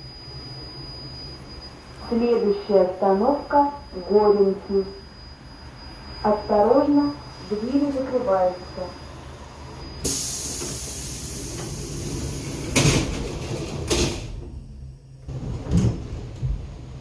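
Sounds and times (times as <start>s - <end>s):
train low hum: 0.0s - 17.0s
train door hiss: 10.0s - 14.3s
train doors slamming shut: 10.0s - 14.6s, 15.2s - 16.9s.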